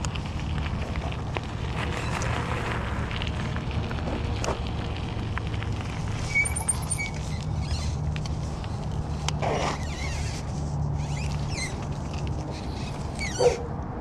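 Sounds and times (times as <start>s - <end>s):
tyres rolling over gravel: 0.0s - 13.3s
short high squeak: 6.2s - 8.0s, 9.4s - 10.4s, 11.0s - 11.8s, 12.5s - 13.6s.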